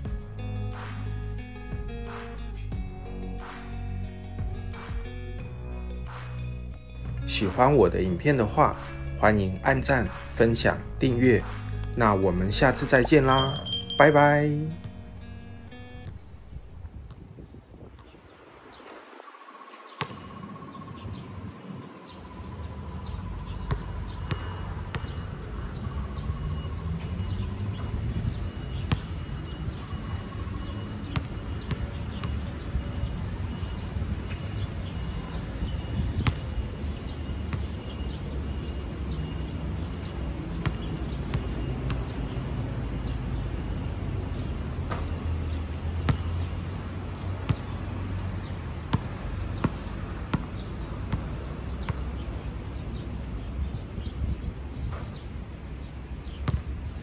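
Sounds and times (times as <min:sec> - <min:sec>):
birds chirping: 0:12.0 - 0:16.8, 0:45.1 - 0:54.2
basketball bouncing: 0:36.2 - 0:36.5, 0:46.1 - 0:46.5, 0:47.5 - 0:47.8, 0:48.4 - 0:52.1, 0:56.4 - 0:56.6.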